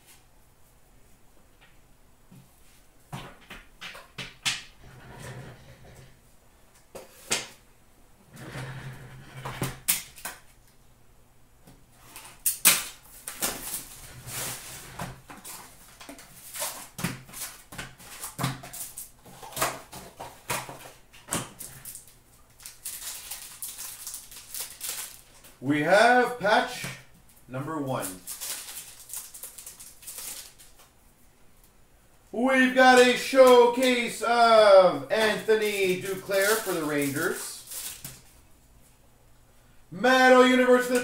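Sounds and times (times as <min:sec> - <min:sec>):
foil packs rustling: 0:12.0 - 0:25.6, 0:27.9 - 0:30.9, 0:35.2 - 0:38.4.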